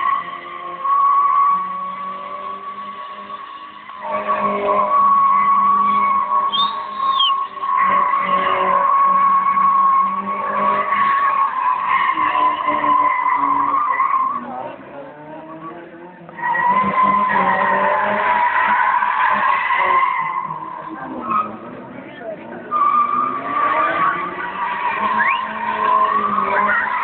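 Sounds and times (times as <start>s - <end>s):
car engine revving: 0.0s - 27.0s
tyres squealing: 4.9s - 10.1s.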